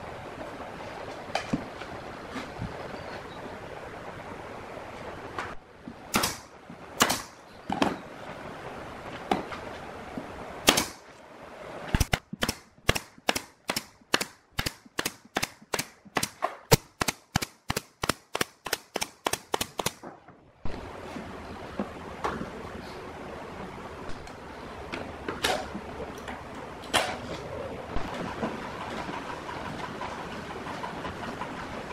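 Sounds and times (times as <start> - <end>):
pneumatic nail gun shots: 6.1 - 7.4, 10.6 - 11.0, 12.0 - 20.0.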